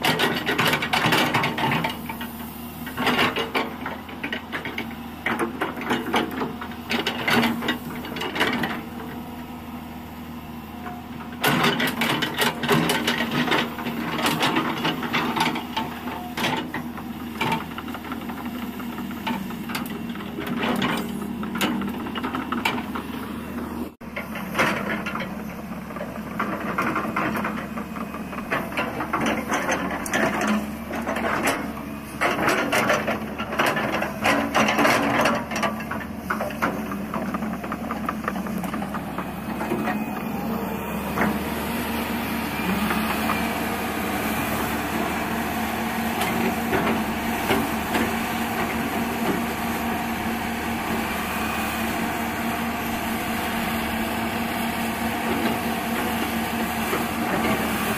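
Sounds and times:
excavator diesel engine running: 0:00.0 - 0:57.9.

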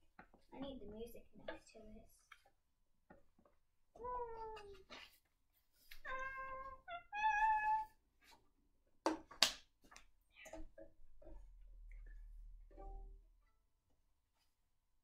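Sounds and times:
cat meowing: 0:06.0 - 0:08.0.

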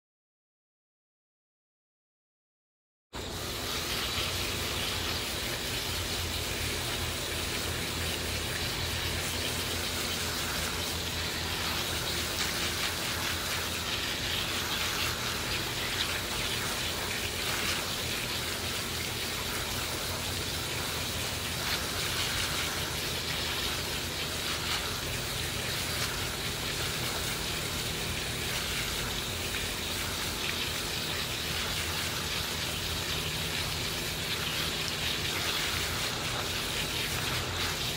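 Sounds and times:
hose nozzle spraying water: 0:03.2 - 0:37.9.

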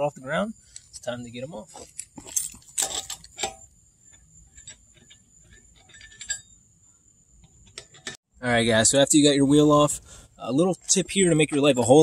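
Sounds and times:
lug wrench clinking on nut: 0:04.5 - 0:06.6.

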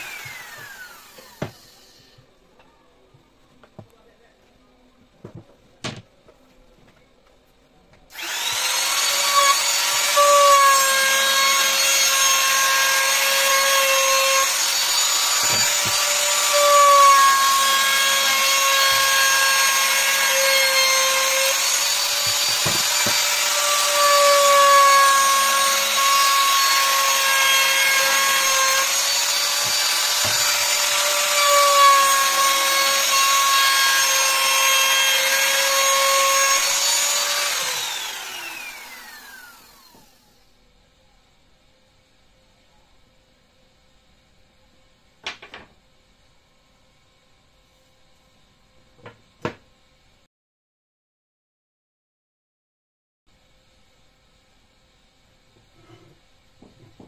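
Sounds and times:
trim router whining: 0:00.0 - 0:02.0, 0:08.1 - 0:40.3.

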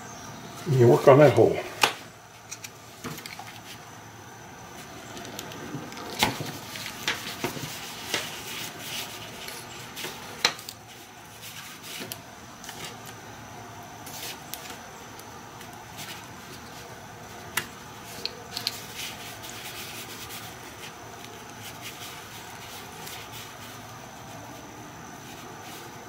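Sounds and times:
awl and rivet scratching and clicking: 0:04.8 - 0:13.2, 0:17.5 - 0:26.0.

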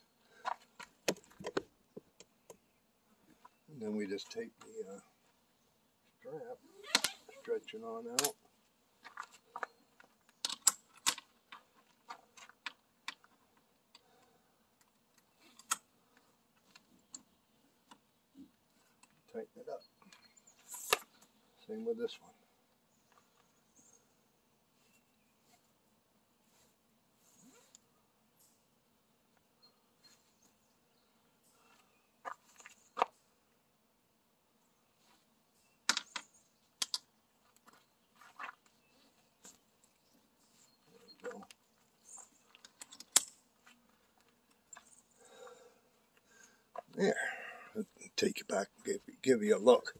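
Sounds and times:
strap buckle clicking and rattling: 0:09.0 - 0:14.1, 0:14.8 - 0:18.0, 0:35.9 - 0:38.6, 0:42.2 - 0:45.0
nylon strap rasping through buckle: 0:20.2 - 0:21.4, 0:26.4 - 0:27.9.

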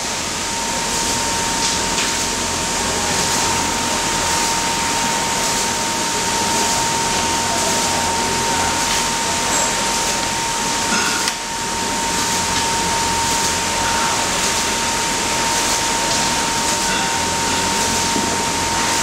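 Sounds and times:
factory machinery noise: 0:00.0 - 0:19.0.

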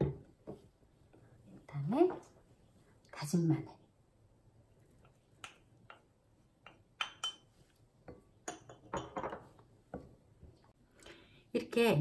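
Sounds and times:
spoon clinking on dishes: 0:06.6 - 0:09.5.

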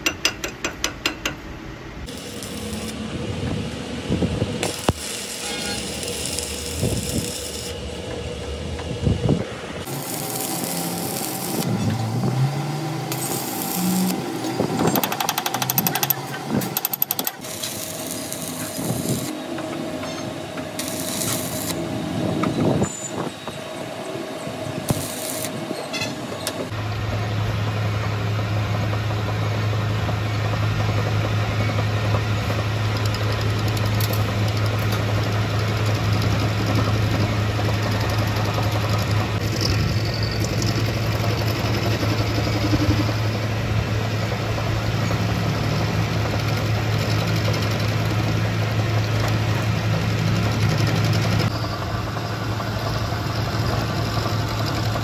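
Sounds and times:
arc welding crackle: 0:02.0 - 0:20.0, 0:20.6 - 0:23.2, 0:24.6 - 0:55.0
metal lathe humming: 0:02.1 - 0:26.7.

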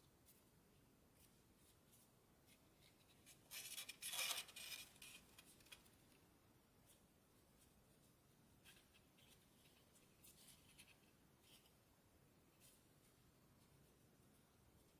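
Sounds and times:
paper rustling and crinkling: 0:01.2 - 0:06.0.

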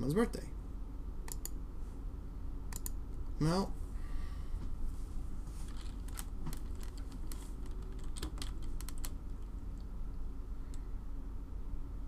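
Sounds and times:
steady low hum: 0:00.0 - 0:12.0
computer keyboard typing: 0:05.7 - 0:09.9.

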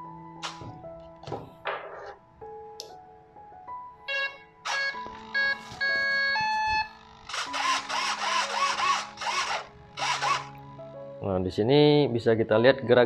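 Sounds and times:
background music: 0:00.0 - 0:13.0
small servos whirring: 0:07.3 - 0:10.5.

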